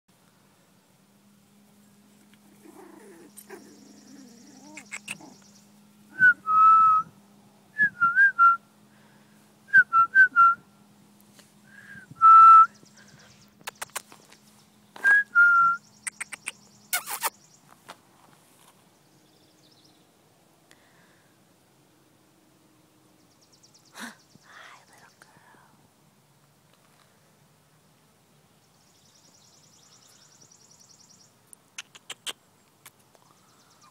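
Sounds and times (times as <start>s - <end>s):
faint steady hum: 0.1s - 13.6s, 17.5s - 31.8s
sharp clicks: 13.6s - 14.2s, 16.1s - 17.3s
person whistling: 15.0s - 15.8s.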